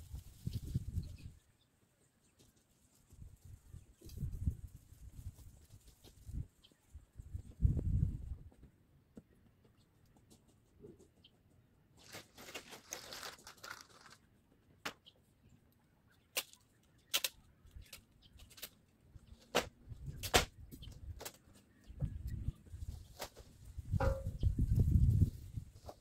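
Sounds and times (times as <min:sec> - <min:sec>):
rustling: 0:11.9 - 0:14.4.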